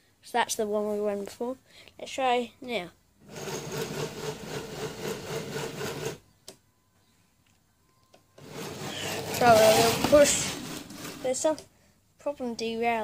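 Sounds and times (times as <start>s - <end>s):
model train motor whirring: 3.3s - 6.2s, 8.4s - 11.3s.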